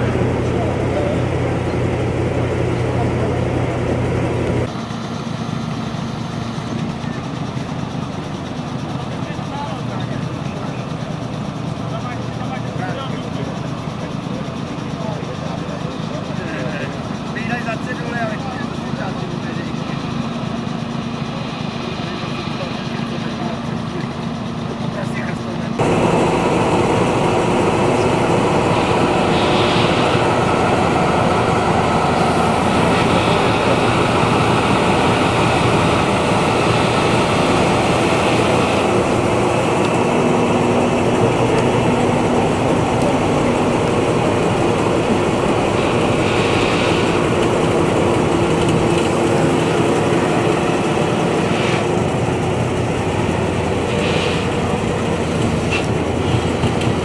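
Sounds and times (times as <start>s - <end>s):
engine running steadily: 0.0s - 57.0s.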